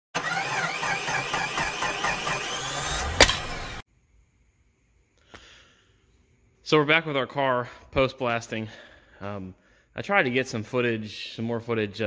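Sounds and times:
car engine wavering pitch: 0:00.2 - 0:03.8
sharp bang: 0:03.0 - 0:03.8.

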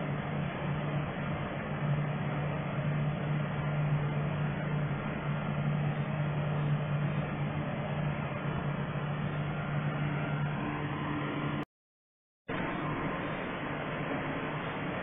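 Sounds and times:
low hum: 0:00.0 - 0:11.7, 0:12.5 - 0:15.0.

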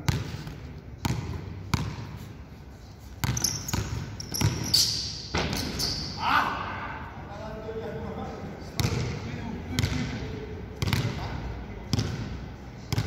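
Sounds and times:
basketball bouncing on court: 0:00.0 - 0:02.1, 0:03.2 - 0:06.0, 0:08.8 - 0:10.2, 0:10.8 - 0:11.3, 0:11.9 - 0:13.0
sneaker squeaks: 0:01.7 - 0:06.4.

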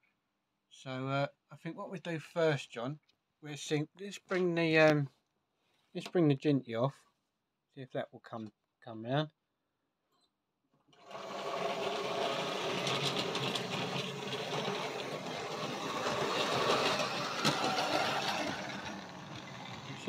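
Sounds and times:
model train motor whirring: 0:11.0 - 0:20.0
model train wheel noise: 0:11.0 - 0:20.0.

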